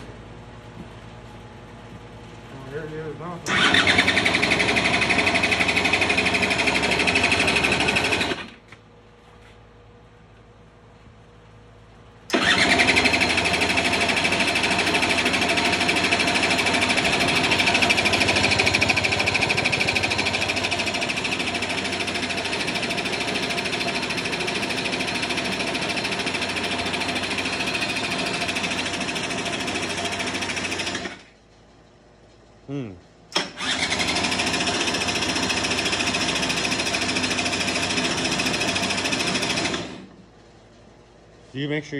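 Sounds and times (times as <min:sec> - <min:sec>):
two-stroke engine running: 0:02.6 - 0:08.6, 0:12.3 - 0:31.3, 0:32.7 - 0:40.2.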